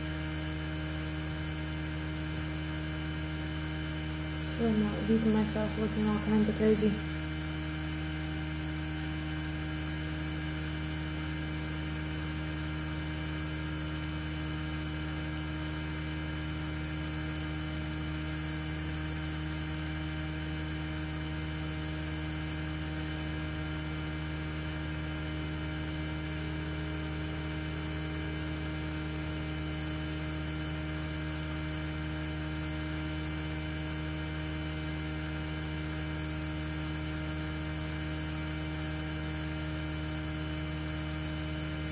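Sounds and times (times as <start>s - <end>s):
electrical hum: 0.0s - 41.9s.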